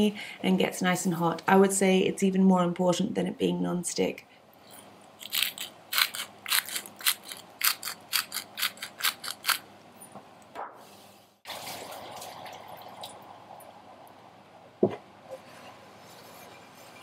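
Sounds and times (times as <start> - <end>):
faint steady hum: 0.0 - 17.0
pepper mill grinding: 5.2 - 9.6.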